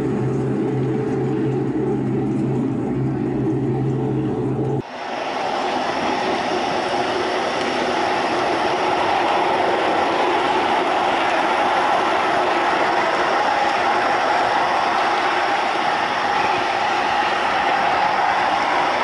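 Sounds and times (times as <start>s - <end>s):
low hum: 0.0s - 19.0s
model train wheels rolling on rail: 4.8s - 19.0s.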